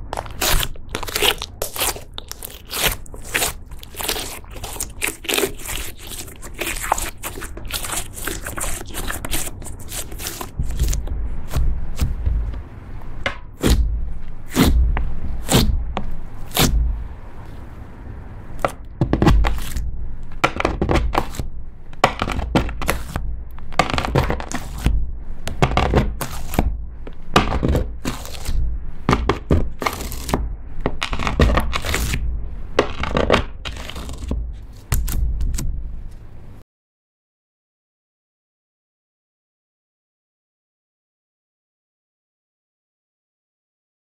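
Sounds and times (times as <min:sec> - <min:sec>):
knife slicing on wooden board: 0:00.2 - 0:12.2.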